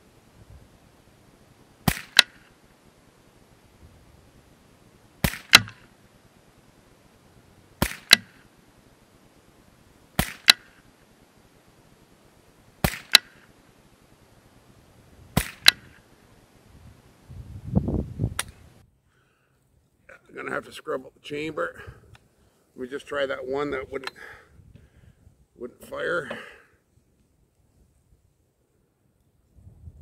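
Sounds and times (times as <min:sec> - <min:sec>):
rifle shots: 0:01.8 - 0:02.6, 0:05.2 - 0:05.9, 0:07.8 - 0:08.5, 0:10.2 - 0:10.8, 0:12.8 - 0:13.5, 0:15.4 - 0:16.0
single click: 0:18.3 - 0:18.6.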